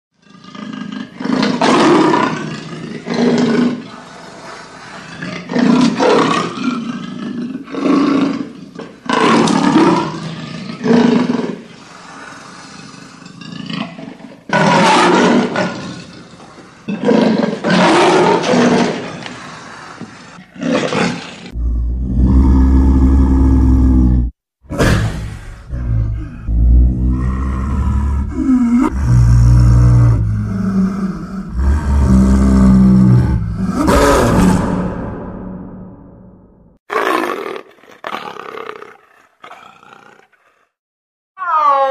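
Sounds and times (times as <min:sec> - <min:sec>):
leopard roaring and snarling: 0:00.2 - 0:35.9, 0:36.9 - 0:40.8
deep rumbling low hum: 0:25.3 - 0:33.9.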